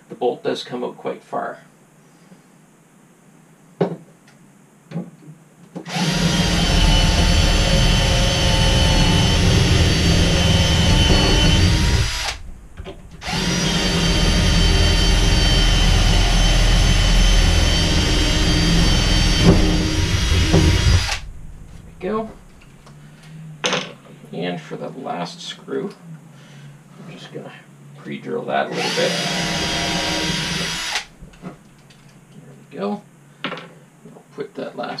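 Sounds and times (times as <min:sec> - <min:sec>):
cordless drill boring through wood: 0:05.9 - 0:21.4, 0:28.7 - 0:31.2.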